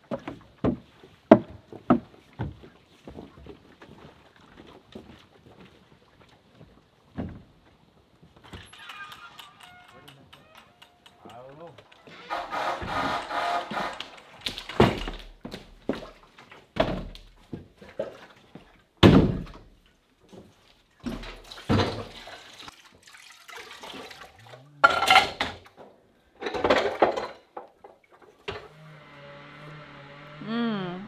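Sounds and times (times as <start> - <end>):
plastic water jugs thumping on wood floor: 14.4 - 17.7, 19.0 - 19.7, 21.0 - 22.2.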